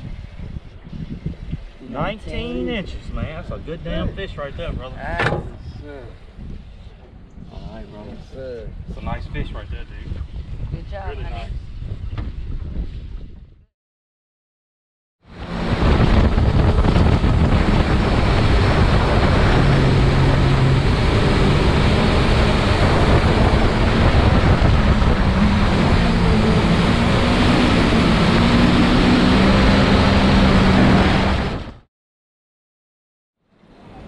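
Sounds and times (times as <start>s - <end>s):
wind buffeting microphone: 0.0s - 13.7s, 15.3s - 31.8s
hull rushing through water: 15.2s - 31.9s
outboard motor running: 15.4s - 31.8s.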